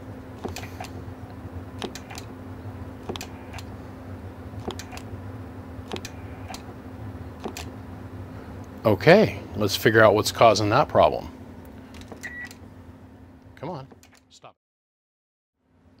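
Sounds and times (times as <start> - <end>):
low electrical hum: 0.0 - 14.5, 15.6 - 16.0
sharp clicks: 1.8 - 2.3, 3.0 - 3.7, 4.6 - 5.1, 5.9 - 6.6, 7.4 - 7.7.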